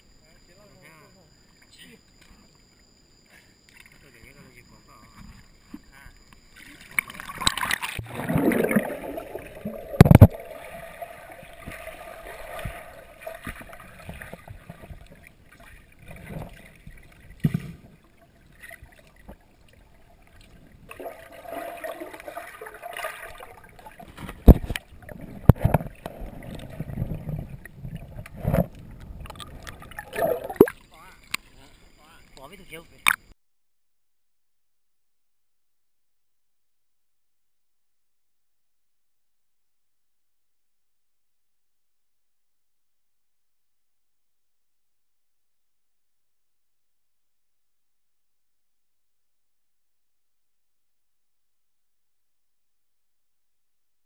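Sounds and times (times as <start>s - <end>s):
water sloshing and gurgling: 1.4s - 33.3s.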